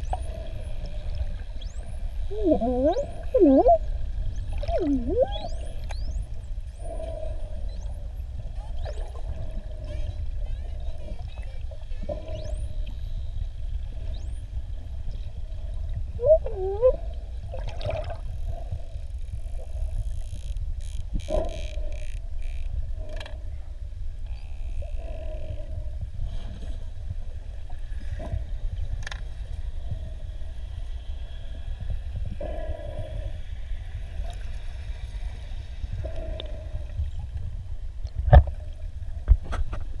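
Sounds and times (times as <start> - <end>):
dolphin clicks and pulses: 0.0 - 6.3, 16.2 - 17.2
underwater low rumble: 0.0 - 40.0
dolphin warbling whistle: 1.6 - 3.9, 4.6 - 5.8, 16.2 - 17.0.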